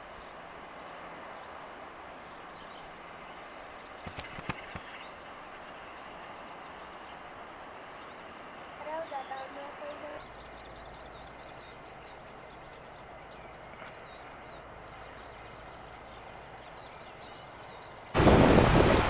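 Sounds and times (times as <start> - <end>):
small birds chirping: 2.3 - 7.2, 7.9 - 18.2
stream rushing over stones: 18.1 - 19.0.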